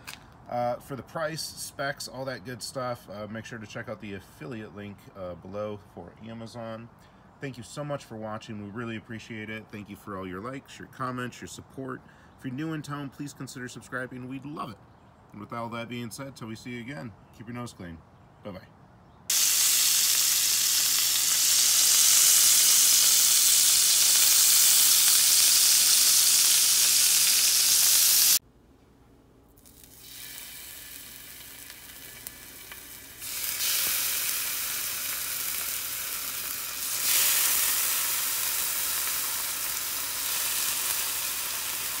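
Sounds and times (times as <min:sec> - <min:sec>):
bacon sizzling in a pan: 0:19.3 - 0:28.4, 0:29.6 - 0:42.0.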